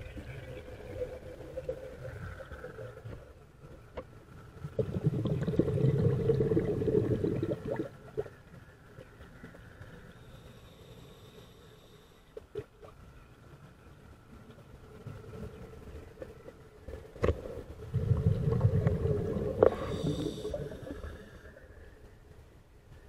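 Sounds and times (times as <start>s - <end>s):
air bubbling underwater: 4.7s - 8.2s, 17.9s - 21.0s.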